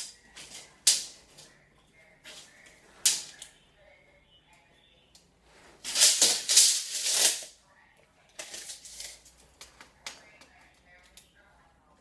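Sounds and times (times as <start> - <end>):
faint clicks and scratches: 7.0 - 12.0.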